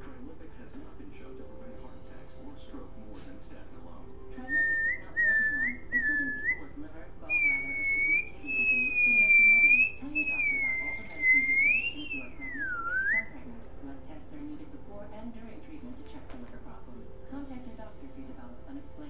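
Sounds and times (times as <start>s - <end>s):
person whistling: 7.3s - 13.2s.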